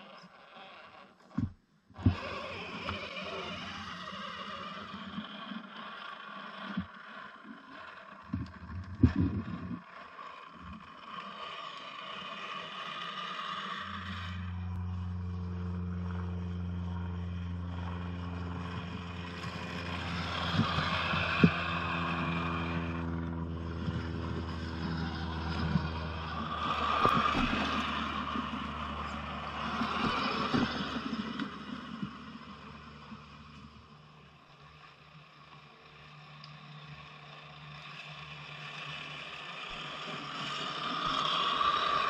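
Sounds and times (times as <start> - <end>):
tyres ticking and scraping: 0.0 - 15.0
electric motor and gear whine: 0.0 - 42.0.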